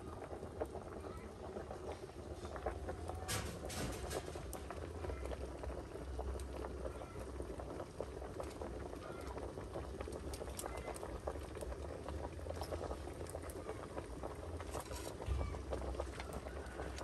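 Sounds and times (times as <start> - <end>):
pot boiling and bubbling: 0.0 - 17.0.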